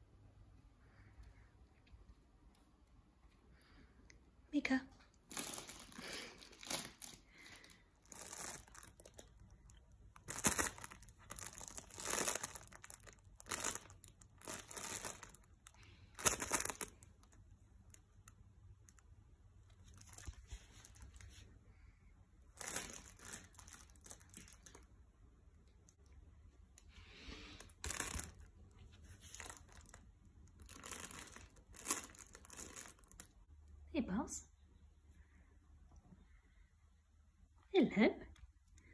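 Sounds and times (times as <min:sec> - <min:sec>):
nylon tunnel rustling and crackling: 0:05.2 - 0:17.1, 0:19.8 - 0:21.3, 0:22.6 - 0:24.8, 0:27.6 - 0:33.5.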